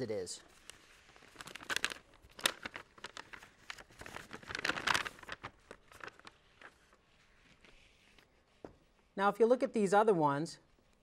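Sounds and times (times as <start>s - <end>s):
paper envelope rustling: 0.5s - 8.6s.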